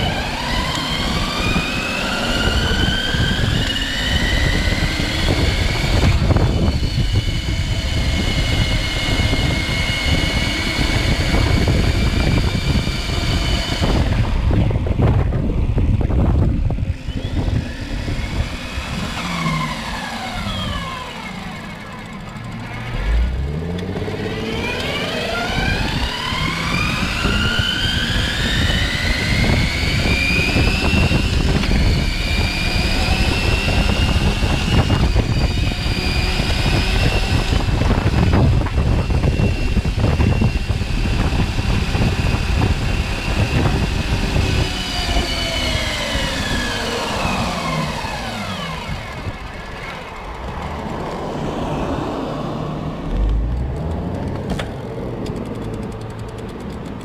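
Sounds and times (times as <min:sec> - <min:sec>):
wind rumble on microphone: 0:00.0 - 0:21.6, 0:23.0 - 0:57.0
electric bike motor whining: 0:00.0 - 0:57.0.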